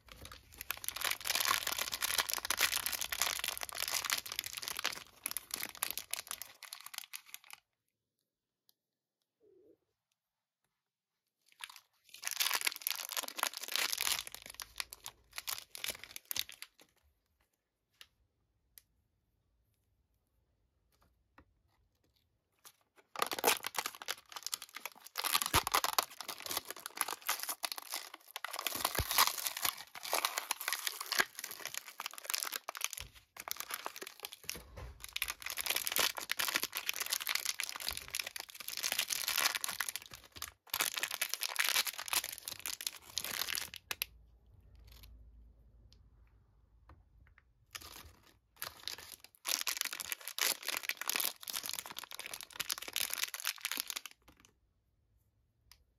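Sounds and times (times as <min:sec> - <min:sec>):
plastic wrapper crinkling: 0:00.0 - 0:07.6, 0:11.5 - 0:17.0, 0:22.6 - 0:44.1, 0:47.7 - 0:54.5.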